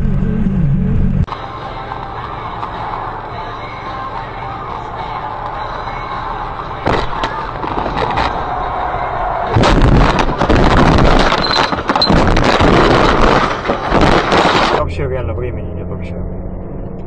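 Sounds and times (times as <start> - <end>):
road noise inside car: 0.0 - 17.0
car crash bangs and crunches: 6.8 - 8.6, 9.4 - 14.8.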